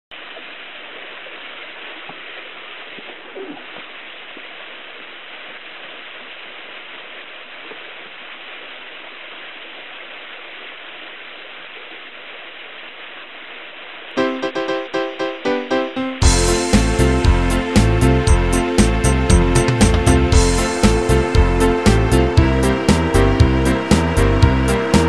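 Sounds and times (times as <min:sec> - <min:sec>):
water rushing over boulders: 0:00.1 - 0:14.2
piano music: 0:14.2 - 0:25.0.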